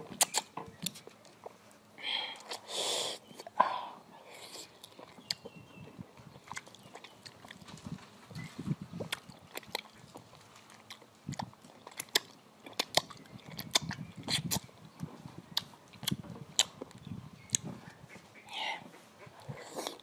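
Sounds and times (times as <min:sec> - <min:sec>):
person chewing mango: 0:00.0 - 0:03.6, 0:04.2 - 0:07.8, 0:08.4 - 0:17.7, 0:19.2 - 0:20.0
wet mouth clicks and smacks: 0:00.1 - 0:01.4, 0:06.3 - 0:07.6, 0:09.0 - 0:10.3, 0:10.9 - 0:14.8, 0:15.6 - 0:17.7.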